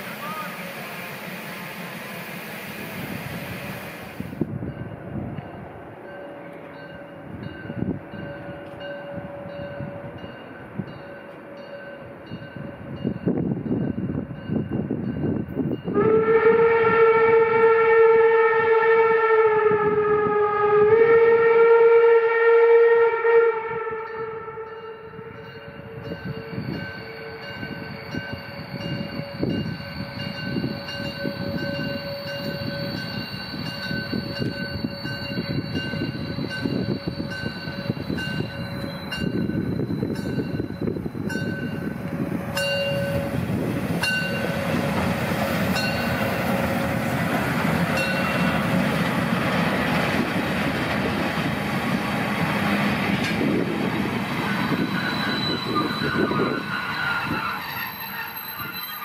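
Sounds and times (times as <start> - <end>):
train coaches rolling by: 0.0 - 18.0, 24.1 - 59.0
steam locomotive whistle: 15.9 - 48.8, 54.3 - 59.0.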